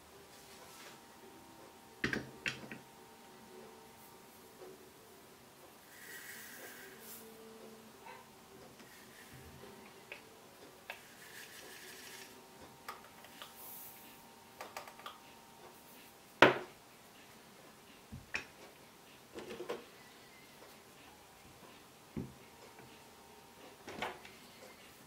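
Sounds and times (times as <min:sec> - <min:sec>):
solder balls pouring: 0:11.0 - 0:12.4.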